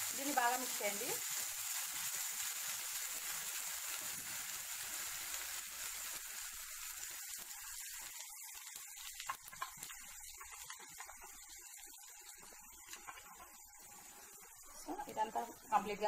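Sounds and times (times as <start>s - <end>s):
paste sizzling in hot oil: 0.0s - 16.0s.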